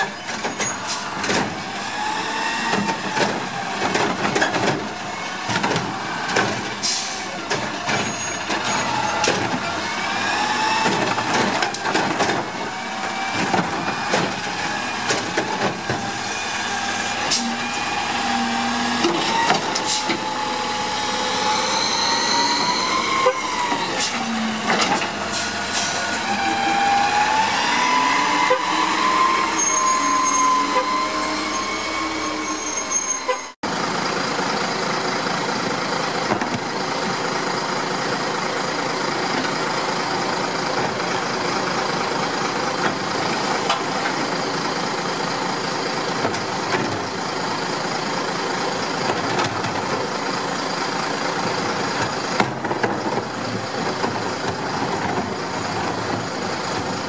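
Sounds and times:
garbage truck running: 0.0s - 57.0s
garbage truck engine revving: 0.1s - 33.1s.

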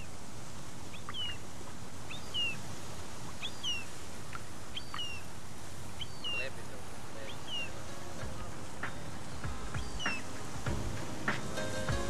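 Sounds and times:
small bird chirping and whistling: 1.0s - 1.4s, 2.1s - 2.6s, 3.4s - 3.9s, 4.8s - 5.3s, 6.0s - 6.5s, 7.3s - 7.8s, 9.1s - 10.4s.

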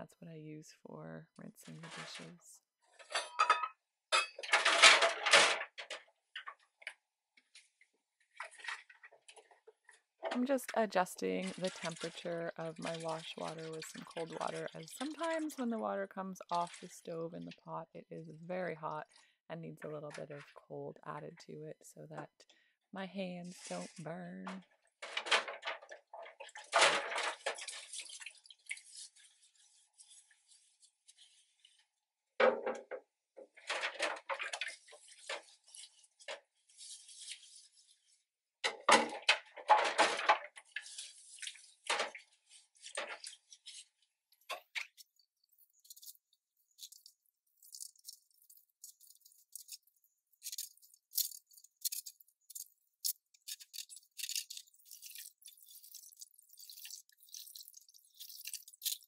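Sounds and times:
dishes clinking: 3.1s - 5.3s
water splashing in sink: 4.2s - 19.2s, 23.5s - 59.0s.

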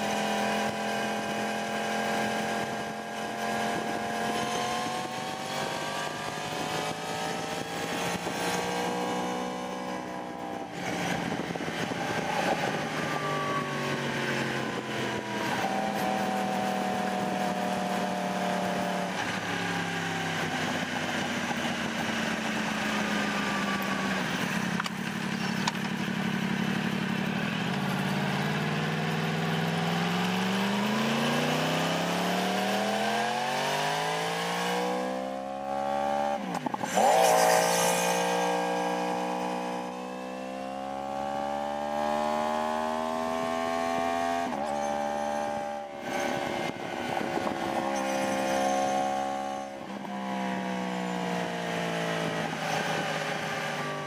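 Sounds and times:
motorcycle engine accelerating: 0.0s - 54.0s
wind rush: 10.0s - 19.4s.

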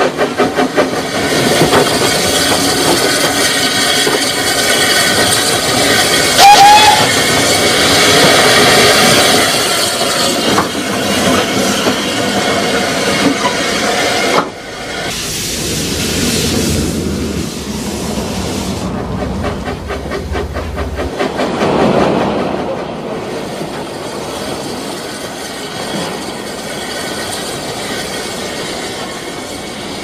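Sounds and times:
steam whistle blast: 6.4s - 7.2s
steam hiss: 13.8s - 21.3s, 23.2s - 30.0s.

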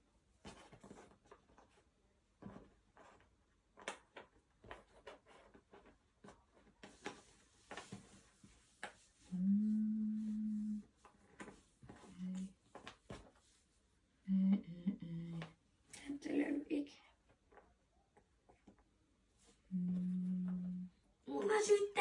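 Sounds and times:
steady low hum: 9.2s - 10.9s.

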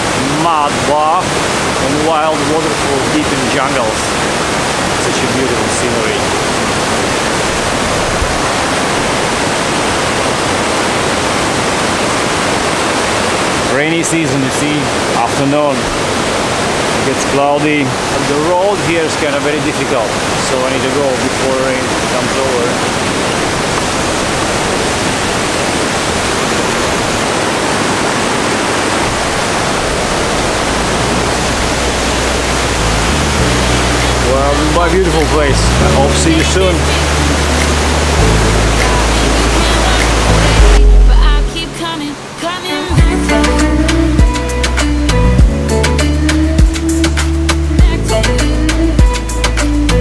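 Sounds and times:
waterfall rushing: 0.0s - 50.0s.

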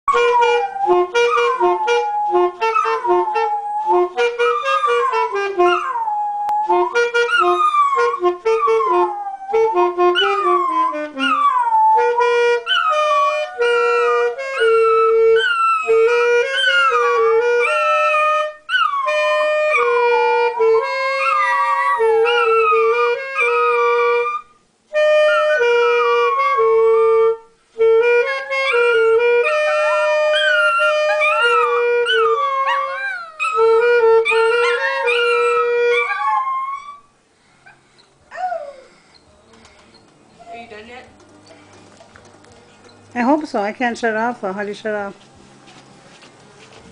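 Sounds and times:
saxophone playing held notes: 0.1s - 36.2s
dogs howling: 28.7s - 37.1s, 38.3s - 38.9s.

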